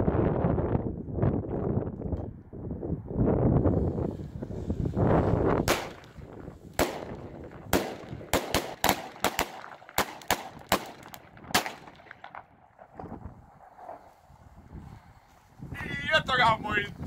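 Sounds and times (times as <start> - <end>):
wind noise on microphone: 0.0 - 17.0
firecracker bangs: 5.6 - 13.0.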